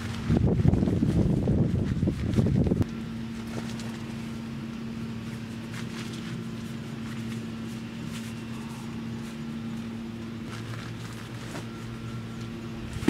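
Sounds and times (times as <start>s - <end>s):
wind buffeting microphone: 0.0s - 2.8s
nylon fabric rustling: 0.0s - 4.5s, 5.1s - 13.0s
steady low hum: 0.0s - 13.0s.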